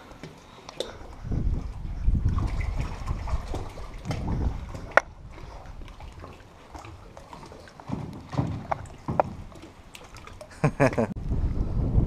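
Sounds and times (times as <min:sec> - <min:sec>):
water sloshing against hull: 0:00.0 - 0:11.7
hollow knocks: 0:07.8 - 0:09.7.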